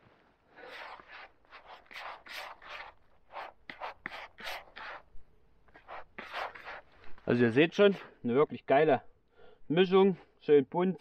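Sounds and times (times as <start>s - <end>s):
groundbait being stirred and scraped: 0.6s - 5.1s.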